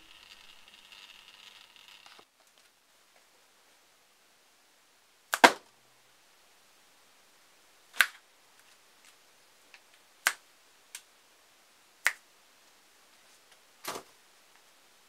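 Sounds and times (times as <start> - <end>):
finger snaps: 12.0 - 12.2.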